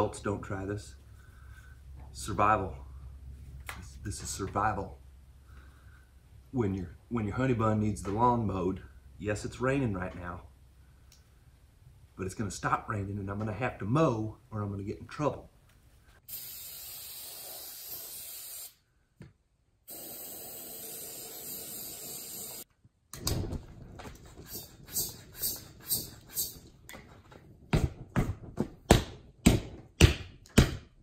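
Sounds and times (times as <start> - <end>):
aerosol can hissing: 16.3 - 18.8, 19.9 - 22.6, 24.4 - 26.6
bicycle pump strokes: 24.1 - 26.7.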